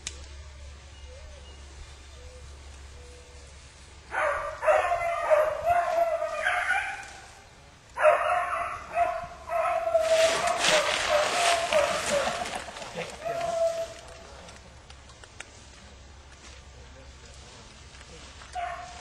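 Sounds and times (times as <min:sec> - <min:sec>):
rustling hiss: 0:00.0 - 0:19.0
hounds baying: 0:02.2 - 0:14.6, 0:18.5 - 0:19.0.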